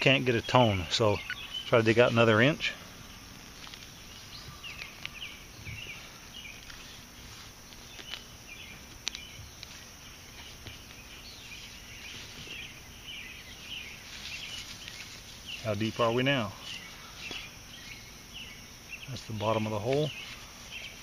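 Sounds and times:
birds chirping: 0:00.0 - 0:21.0
hand scraping soil: 0:05.8 - 0:12.8.

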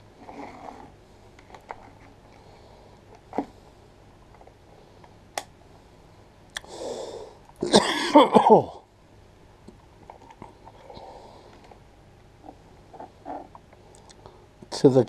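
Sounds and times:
man's cough-like vocal burst: 0:07.6 - 0:08.8
breathy sound: 0:10.8 - 0:11.8.

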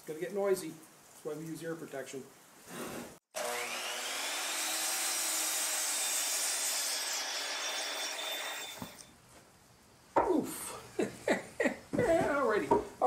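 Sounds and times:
saw blade cutting wood: 0:02.9 - 0:09.1
miter saw whining: 0:03.4 - 0:09.1.

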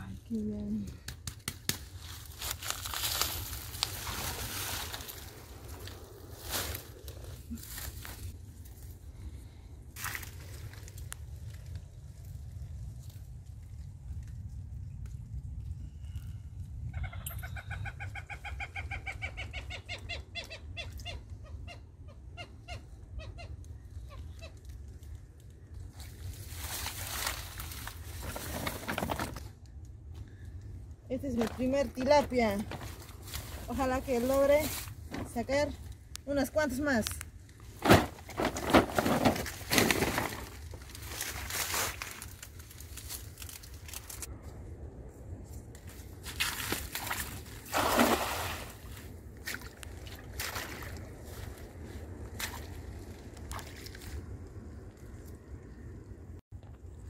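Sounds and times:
reeds and net rustling: 0:02.0 - 0:11.0, 0:25.9 - 0:29.4, 0:37.6 - 0:44.3
plastic sack crinkling and rustling: 0:26.5 - 0:29.4, 0:37.7 - 0:44.3
steady low rumble: 0:29.4 - 0:47.8, 0:48.4 - 0:57.0.

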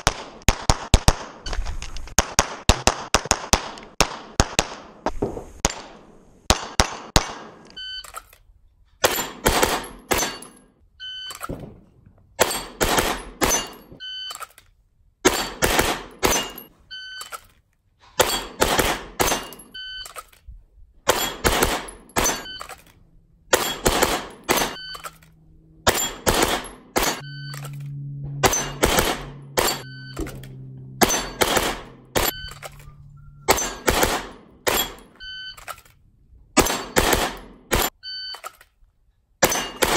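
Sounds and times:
pistol firing rapid shots: 0:00.0 - 0:01.4, 0:02.2 - 0:04.9, 0:09.0 - 0:10.4, 0:12.4 - 0:13.7, 0:15.2 - 0:16.6, 0:18.2 - 0:19.6, 0:21.1 - 0:22.4, 0:23.5 - 0:24.8, 0:25.9 - 0:27.2, 0:28.5 - 0:29.8, 0:31.0 - 0:32.4, 0:33.5 - 0:35.0, 0:36.6 - 0:38.0, 0:39.4 - 0:39.9.

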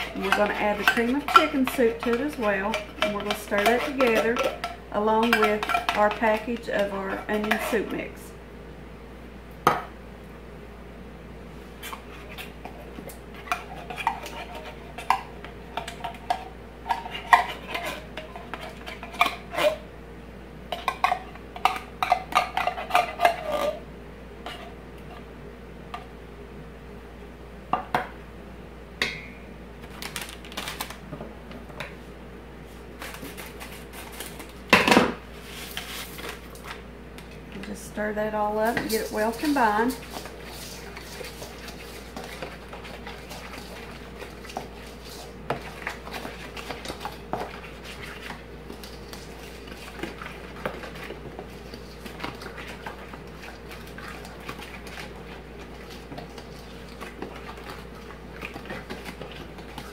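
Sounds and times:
spatula scraping a metal can: 0:00.0 - 0:08.0, 0:38.7 - 0:43.8.

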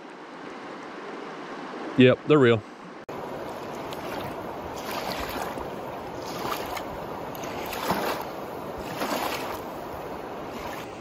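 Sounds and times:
river rushing: 0:02.8 - 0:11.0
small waves lapping on sand: 0:03.1 - 0:11.0.

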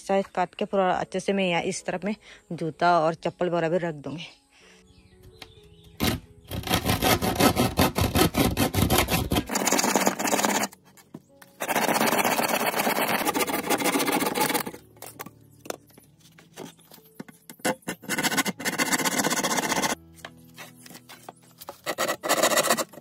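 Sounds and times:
faint background music: 0:00.0 - 0:23.0
handsaw sawing wooden plank: 0:06.0 - 0:10.8, 0:11.6 - 0:14.8, 0:17.7 - 0:20.0, 0:21.7 - 0:23.0.

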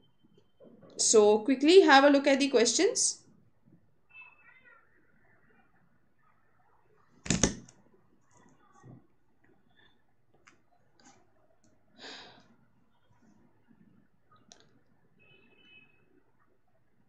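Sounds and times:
loud sharp click: 0:07.3 - 0:07.6
faint clicks and taps: 0:10.3 - 0:11.8.

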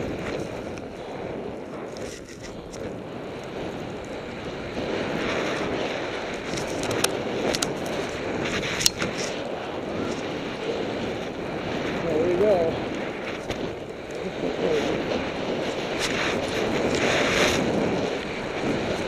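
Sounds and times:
wind on microphone: 0:00.0 - 0:19.0
snowboard hissing on snow: 0:07.2 - 0:19.0.

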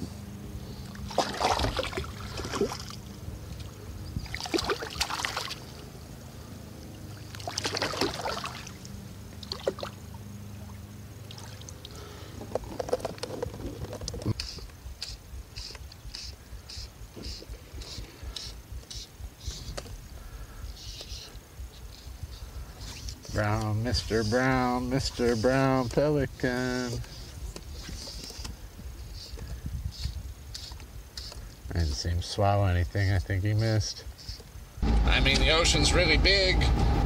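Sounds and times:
short high hissing ticks: 0:14.3 - 0:23.7, 0:26.8 - 0:31.6.

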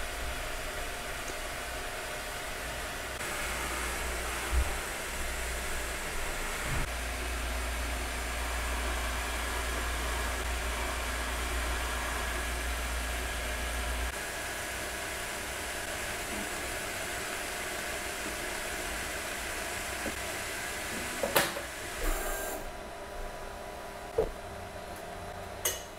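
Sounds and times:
printer fans and motors whirring: 0:00.0 - 0:25.9.

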